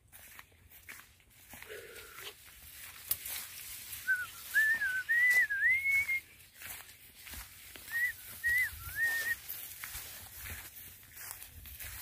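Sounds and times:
person whistling a tune: 4.0 - 6.4, 7.8 - 9.4.

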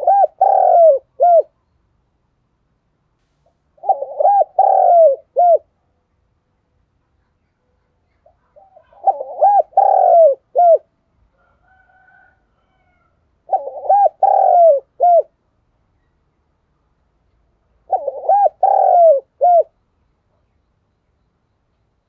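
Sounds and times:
dove cooing: 0.0 - 1.6, 3.8 - 5.7, 8.2 - 10.9, 11.8 - 15.3, 17.8 - 19.8.

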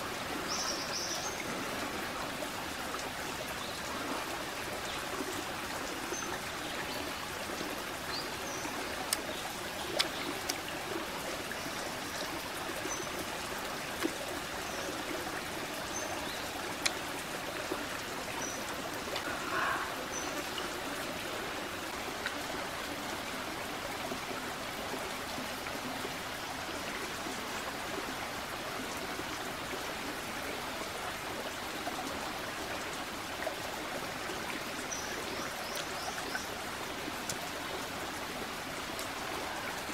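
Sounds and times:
stream flowing over rocks: 0.0 - 39.9.

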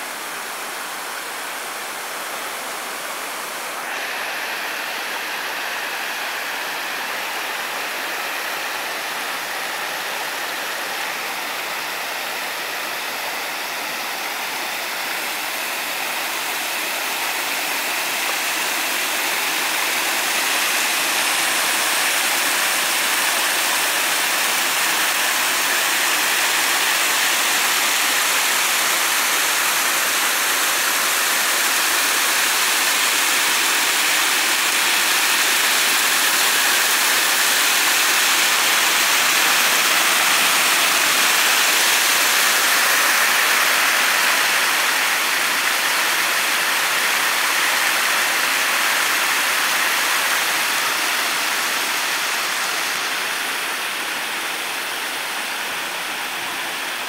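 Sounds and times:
stream water splashing over stones: 12.6 - 57.0.

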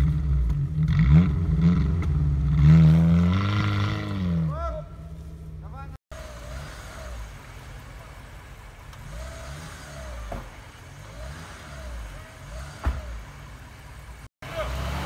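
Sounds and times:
off-road engines revving: 0.0 - 15.0.

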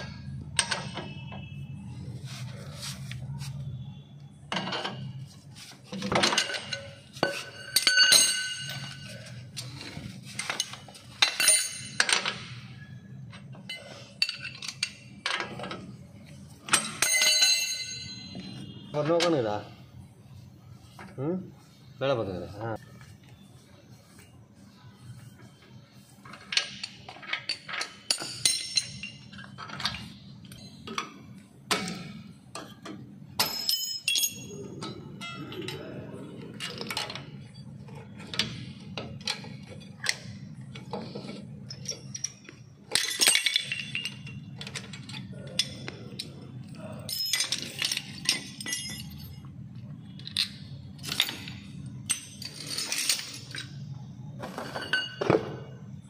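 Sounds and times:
metal tools clinking and clattering: 4.5 - 19.4, 26.2 - 55.9.

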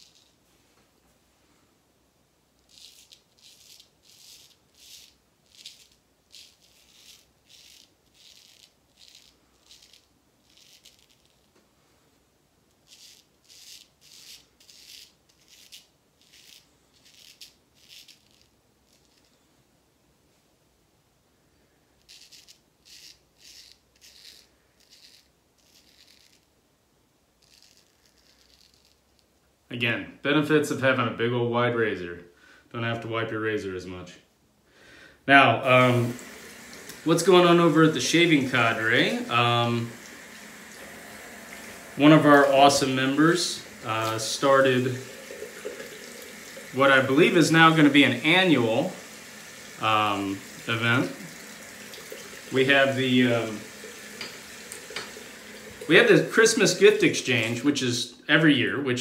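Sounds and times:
razor scraping stubble: 2.6 - 11.5, 12.8 - 19.3, 22.0 - 26.5, 27.4 - 29.2, 35.7 - 57.5
razor rasping on stubble: 2.7 - 11.4, 12.8 - 19.2, 22.0 - 26.5, 27.4 - 29.0.

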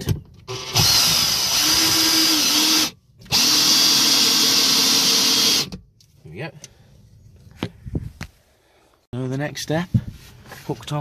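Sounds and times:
cordless drill driving screws: 0.5 - 5.8.

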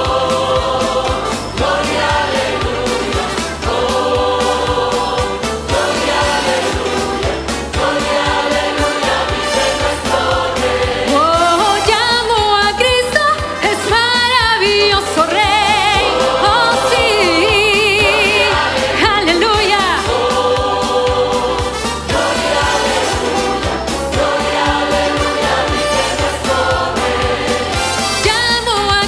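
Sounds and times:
mixed choir singing chords: 0.0 - 12.4, 13.5 - 28.5
music with steady beat: 0.0 - 29.0
woman singing with vibrato: 11.0 - 20.3, 28.2 - 29.0.

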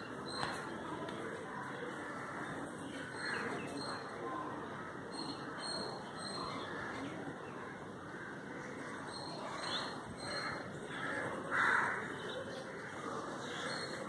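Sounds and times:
crow cawing: 10.4 - 12.1.

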